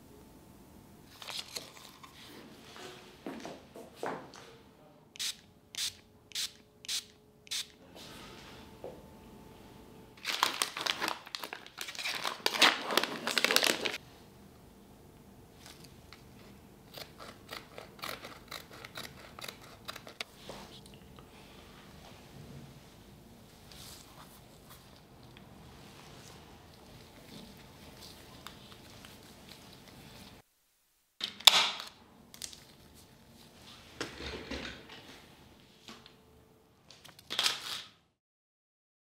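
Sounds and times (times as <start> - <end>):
foil pouch tearing and crinkling: 10.2 - 14.0, 37.1 - 37.9.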